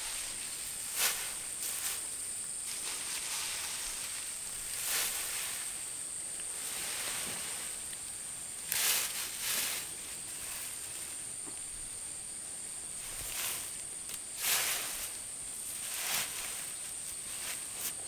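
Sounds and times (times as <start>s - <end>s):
rustling swishes: 2.7s - 5.8s, 14.4s - 18.0s.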